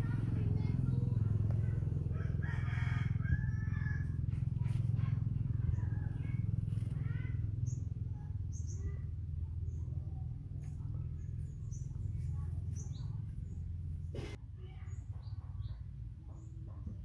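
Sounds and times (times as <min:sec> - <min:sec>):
steady low rumble: 0:00.0 - 0:15.5
bird calls: 0:04.6 - 0:10.0, 0:10.6 - 0:16.6.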